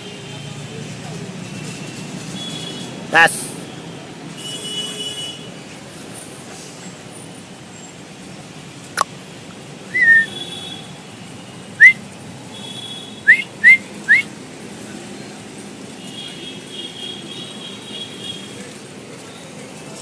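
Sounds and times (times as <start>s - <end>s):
short rising whistles: 9.9s - 10.3s, 13.3s - 14.3s.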